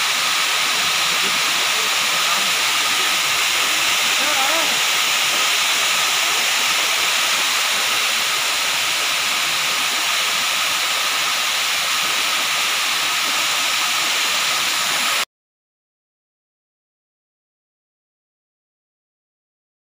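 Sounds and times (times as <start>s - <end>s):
hiss of water mist spray: 0.0s - 15.2s.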